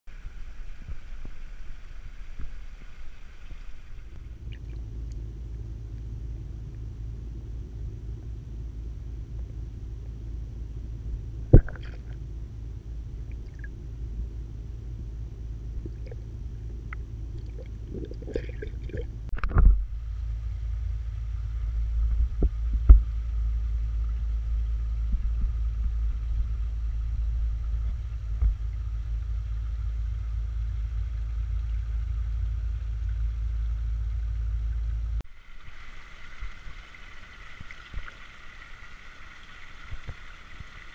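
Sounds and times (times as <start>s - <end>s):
faint steady hum: 0.1s - 40.9s
low water rumble: 0.1s - 40.9s
water trickling: 0.2s - 6.1s, 11.5s - 12.2s, 13.2s - 13.8s, 15.8s - 19.3s, 31.0s - 40.9s
water splash: 11.5s - 12.2s, 17.4s - 19.7s.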